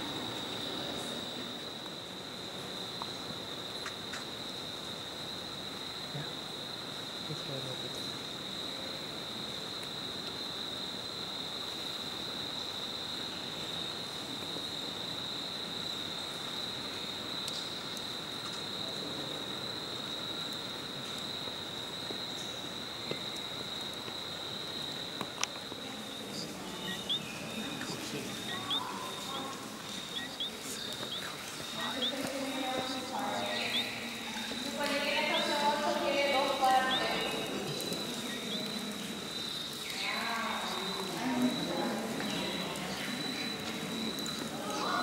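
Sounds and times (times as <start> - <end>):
background hiss: 0.0 - 45.0
insects shrilling: 0.0 - 45.0.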